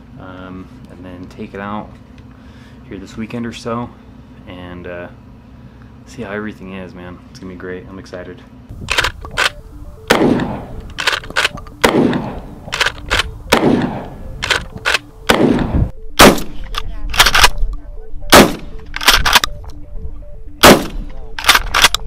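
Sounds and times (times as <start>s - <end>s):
shotgun pump racking: 8.9s - 9.6s, 10.9s - 11.8s, 12.7s - 13.3s, 14.4s - 15.1s, 19.0s - 19.6s, 21.4s - 22.0s
pump-action shotgun shots: 8.9s - 17.6s, 18.3s - 19.5s, 20.6s - 22.0s
rolling echo of gunshots: 10.1s - 10.8s, 11.8s - 16.6s, 18.3s - 19.4s, 20.6s - 21.9s.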